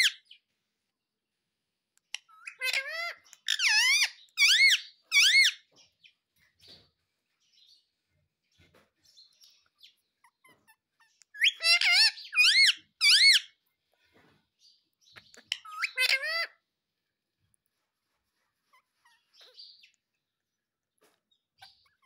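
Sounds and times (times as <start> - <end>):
parakeet squawking: 0.0 - 0.3, 2.1 - 5.6, 10.2 - 13.6, 15.2 - 16.6, 18.6 - 19.8, 21.6 - 22.0.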